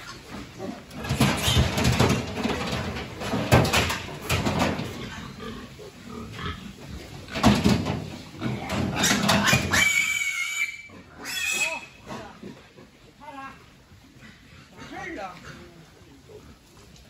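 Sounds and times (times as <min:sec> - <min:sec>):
piglets squealing and grunting: 0:08.4 - 0:13.0.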